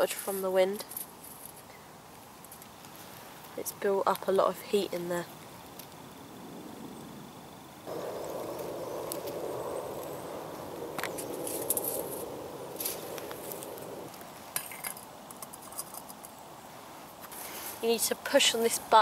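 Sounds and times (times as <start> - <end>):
steady rushing noise: 7.9 - 14.2.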